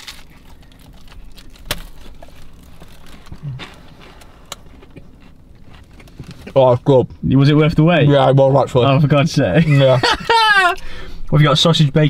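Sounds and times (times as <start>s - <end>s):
person chewing: 0.0s - 6.6s.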